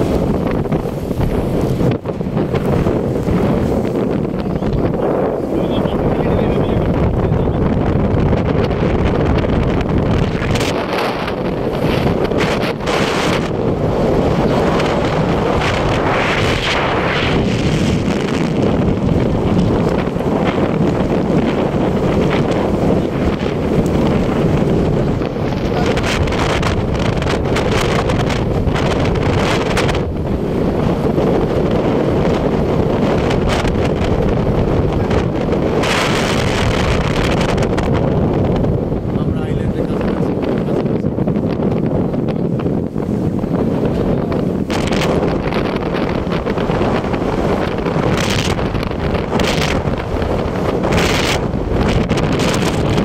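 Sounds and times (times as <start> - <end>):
boat engine and hull rush: 0.0 - 53.0
wind buffeting microphone: 0.0 - 53.0.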